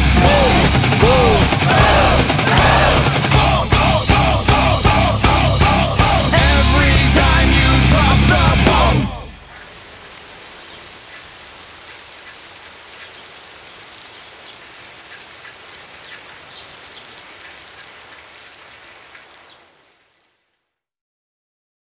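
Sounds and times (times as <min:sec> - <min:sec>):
steady hiss: 0:08.8 - 0:20.8
faint ticks: 0:09.6 - 0:20.6.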